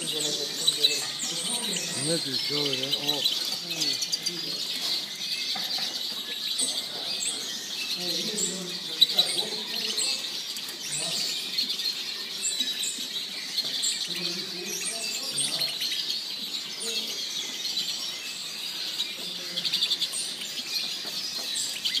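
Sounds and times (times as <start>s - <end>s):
songbirds chirping and twittering: 0.0s - 22.0s.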